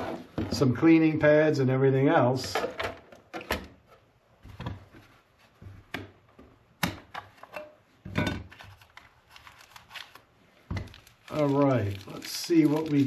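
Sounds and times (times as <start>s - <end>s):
packaging rubbing and scraping: 10.9s - 13.0s.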